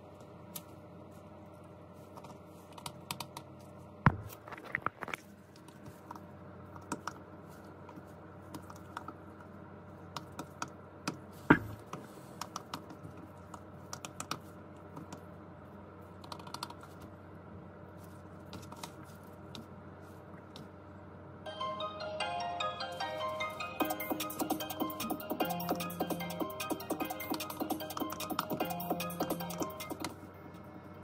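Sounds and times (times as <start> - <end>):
louder thump: 4.1 - 4.3
soft keyboard typing clicks: 12.4 - 14.4, 16.2 - 16.8.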